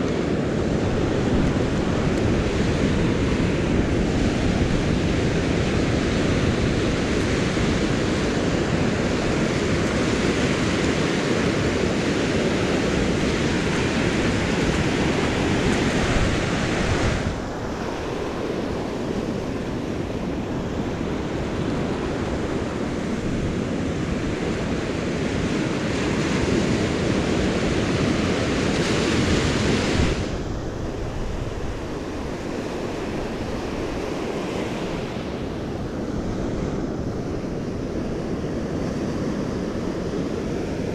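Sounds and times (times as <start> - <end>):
surf washing over sand: 0.0 - 40.9
wind buffeting microphone: 0.0 - 40.9.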